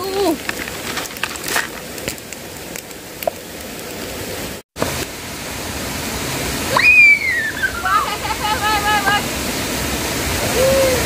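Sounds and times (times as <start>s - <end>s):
stream water rushing: 0.0s - 11.0s
sharp clicks and crackles: 0.4s - 4.1s.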